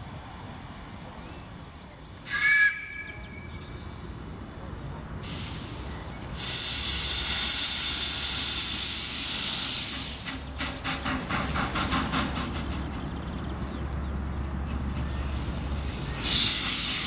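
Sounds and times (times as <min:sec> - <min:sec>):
loud hiss of steam: 0:05.2 - 0:12.6, 0:15.2 - 0:17.0
steam locomotive exhaust beats: 0:05.2 - 0:17.0.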